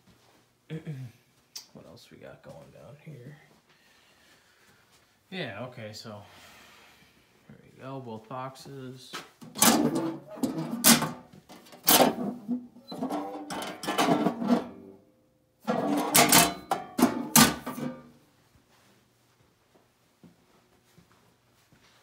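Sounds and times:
metal panel door clanking: 9.5s - 14.8s.

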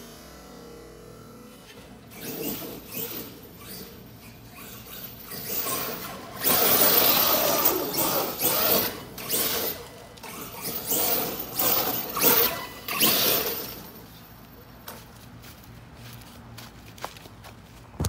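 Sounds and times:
electric rc truck motor whirring: 0.0s - 14.2s.

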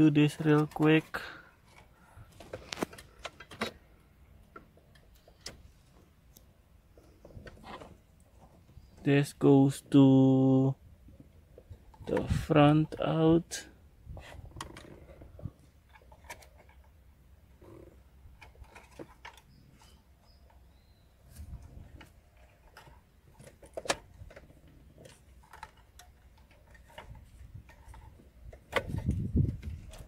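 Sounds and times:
plugs and cables clicking: 0.4s - 5.6s, 21.4s - 30.0s.

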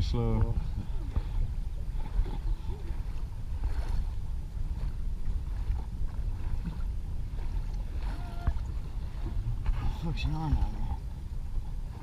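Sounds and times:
water rushing along hull: 0.0s - 12.0s
wind buffeting microphone: 0.0s - 12.0s.

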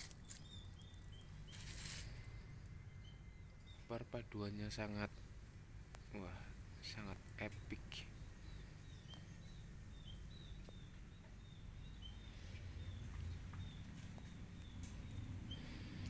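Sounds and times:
small bird chirping: 0.0s - 3.9s, 7.5s - 16.0s.

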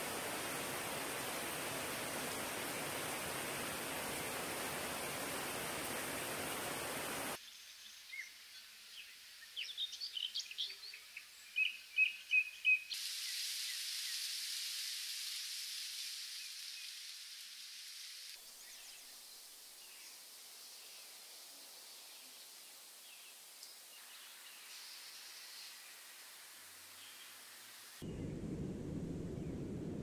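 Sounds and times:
stream rushing over rocks: 0.0s - 7.4s
steady high hiss: 0.0s - 7.6s, 12.9s - 30.0s.

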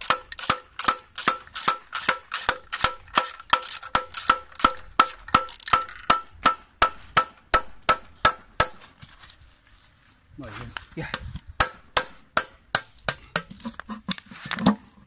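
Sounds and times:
metal-on-metal strikes ringing: 11.6s - 13.5s.

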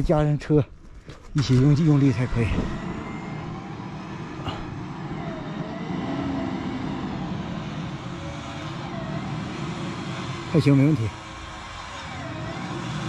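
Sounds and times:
vehicle engine running under load: 1.0s - 13.0s
faint wavering whine: 1.3s - 13.0s.

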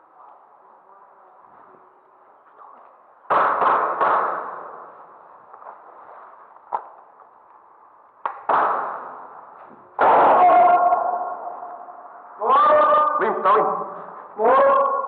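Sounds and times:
airsoft gun shots echoing: 3.3s - 4.9s, 8.4s - 9.3s.

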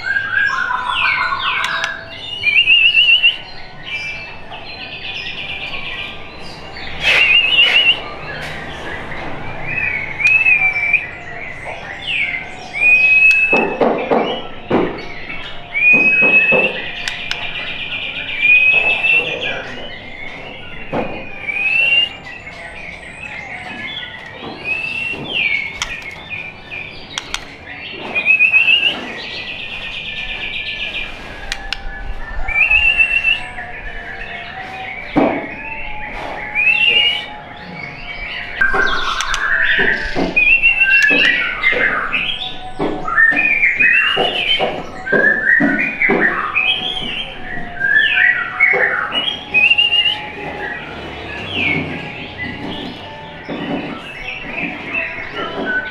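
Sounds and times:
bird singing whistled phrases: 0.0s - 55.9s
bird chatter of rapid notes: 0.1s - 14.5s, 15.2s - 31.8s
sharp clicks: 27.1s - 27.6s, 39.1s - 39.6s.

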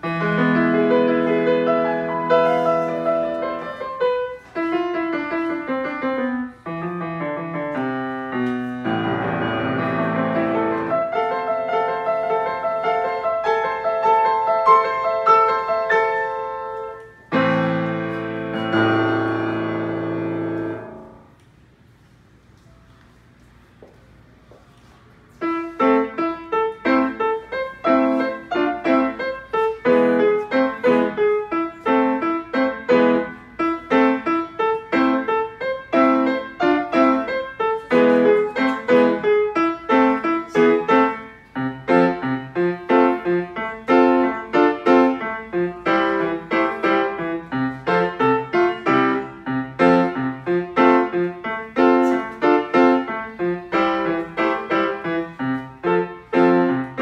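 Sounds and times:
grand piano fast runs and chords: 0.0s - 21.3s, 25.4s - 57.0s.

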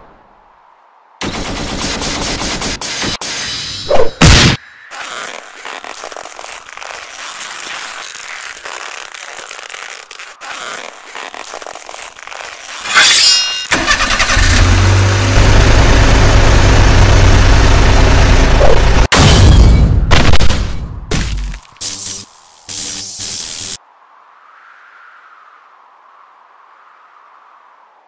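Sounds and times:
sharp cracks: 4.2s - 15.1s
short metallic ring: 12.9s - 13.7s
heavy truck engine: 13.7s - 19.1s
steady hiss: 21.7s - 23.8s.

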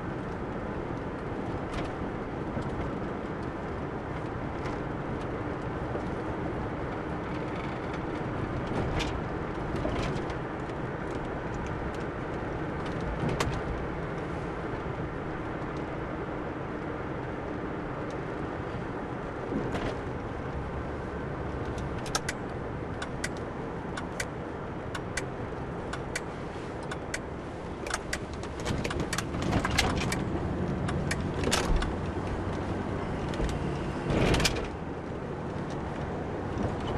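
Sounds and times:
car engine and road noise: 0.0s - 36.9s
sharp clicks and knocks: 21.6s - 22.4s, 23.0s - 25.3s, 25.9s - 32.6s.

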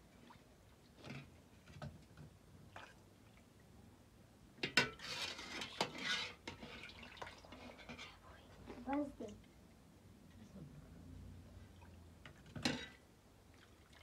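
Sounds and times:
kitchenware clatter and scraping: 4.6s - 8.2s, 12.3s - 13.1s
kitchenware knocks and clinks: 12.5s - 13.0s.

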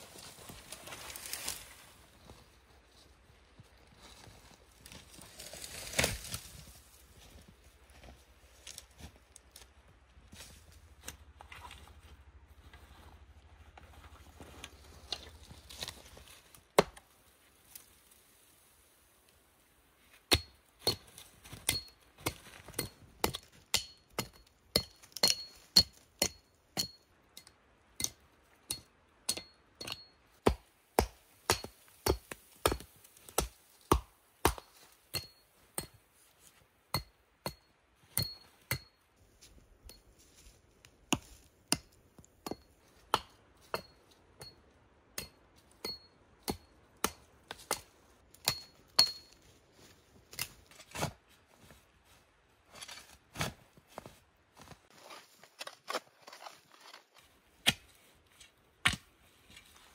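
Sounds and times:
machete chopping wood: 16.8s - 17.0s, 30.4s - 36.0s, 57.6s - 57.8s.

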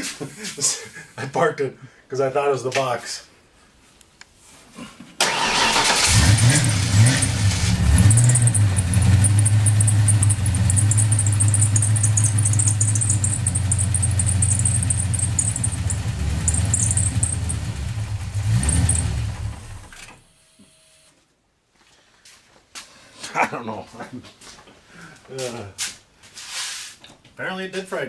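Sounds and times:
car engine starting and idling: 5.2s - 20.2s.

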